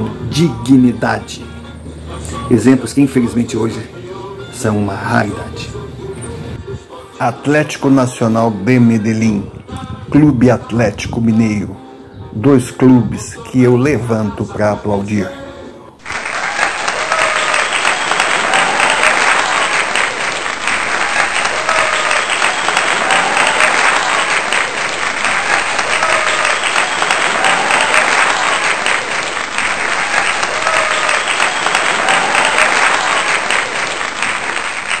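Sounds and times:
crowd applauding: 16.0s - 35.0s
faint cheering: 16.0s - 35.0s.

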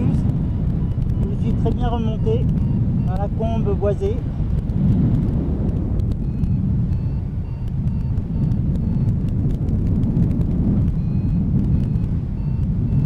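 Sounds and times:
wind rushing over microphone: 0.0s - 13.0s
short electronic beeps: 0.8s - 4.1s, 6.2s - 9.2s, 10.8s - 13.0s.

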